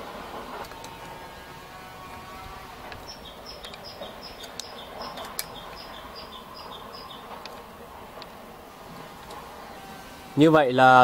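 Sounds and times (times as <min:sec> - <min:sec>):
faint outdoor background noise: 0:00.0 - 0:11.0
bird chirping: 0:02.8 - 0:07.8
screwdriver clicks: 0:02.9 - 0:05.9.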